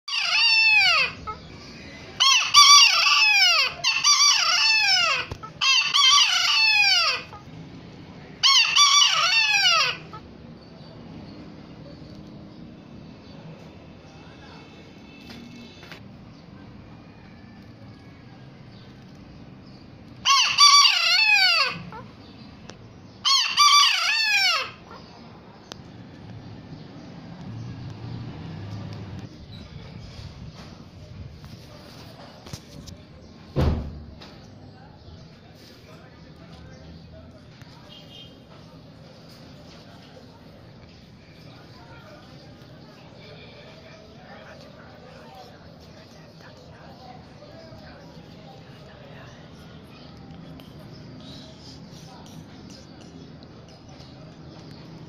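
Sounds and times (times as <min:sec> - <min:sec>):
rooster crowing: 0:00.1 - 0:01.3, 0:02.2 - 0:07.3, 0:08.4 - 0:10.1, 0:16.9 - 0:18.7, 0:20.2 - 0:22.0, 0:23.2 - 0:24.8.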